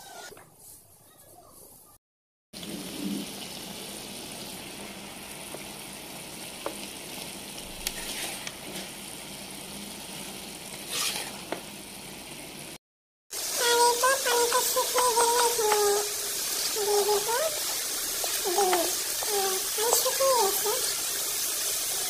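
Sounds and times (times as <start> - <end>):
potatoes sizzling in oil: 2.6 - 22.0
stirring in a pan: 4.5 - 12.5, 13.4 - 22.0.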